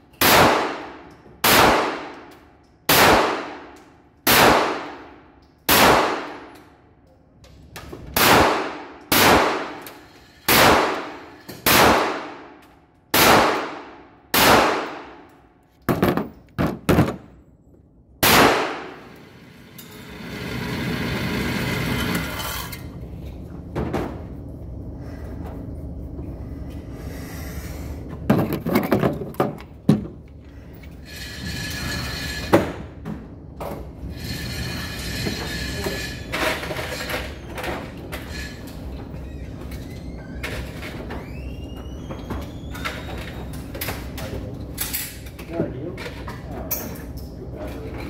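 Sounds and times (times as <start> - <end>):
echoing gunshots: 0.2 - 2.2, 2.9 - 3.7, 4.3 - 5.1, 5.7 - 6.5, 8.2 - 9.8, 10.5 - 12.5, 13.1 - 15.2, 18.2 - 19.1.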